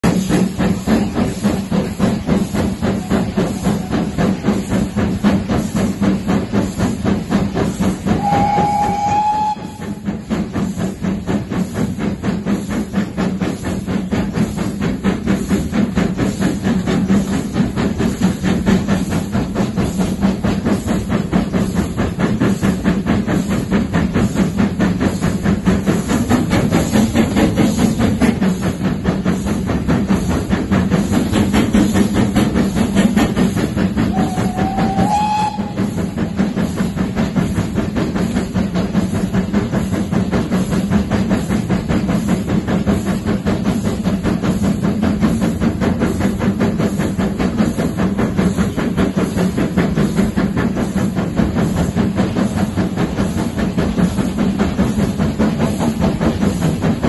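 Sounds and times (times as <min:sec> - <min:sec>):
rail noise: 0:00.0 - 0:57.0
steam locomotive chuffing: 0:00.0 - 0:57.0
steam whistle: 0:08.1 - 0:10.2, 0:34.1 - 0:36.4.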